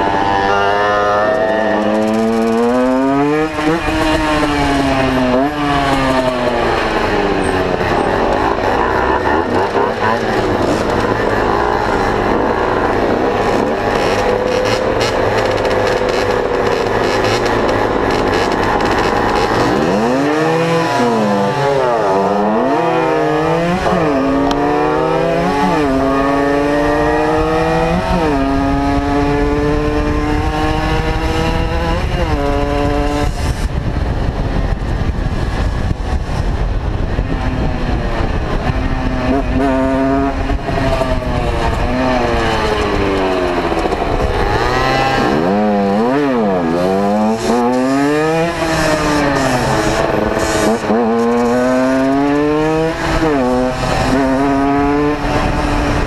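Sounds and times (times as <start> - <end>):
motorcycles idling: 0.0 - 20.2
motorcycle accelerating through gears: 0.0 - 56.0
wind rushing over camera: 0.0 - 56.0.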